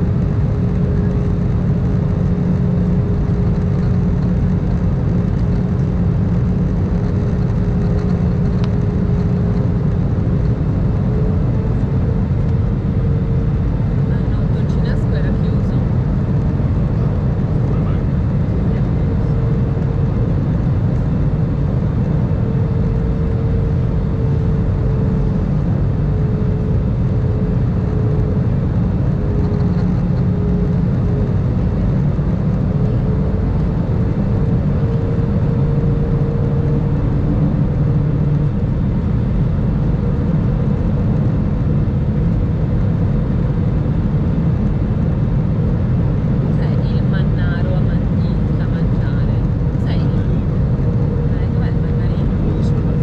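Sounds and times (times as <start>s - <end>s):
humming engine tone: 0.0s - 53.0s
jet engine cabin rumble: 0.0s - 53.0s.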